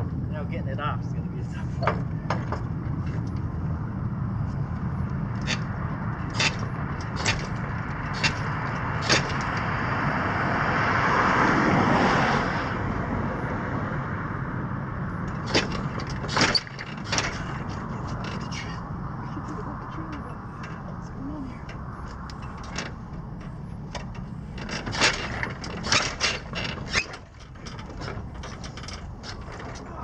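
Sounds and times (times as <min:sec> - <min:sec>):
car passing: 0:00.0 - 0:30.0
trailer and wheel chock knocking: 0:04.6 - 0:10.5, 0:14.6 - 0:30.0.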